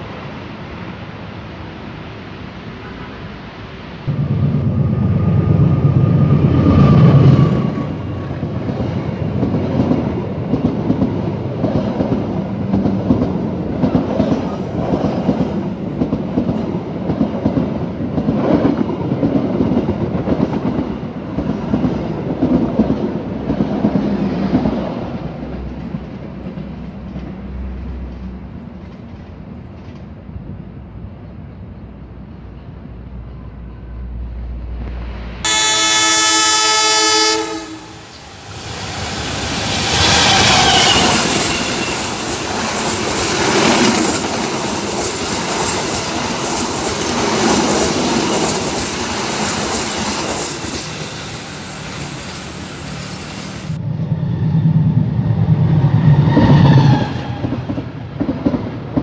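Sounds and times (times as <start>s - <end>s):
train coaches clattering over rails: 38.1s - 53.8s.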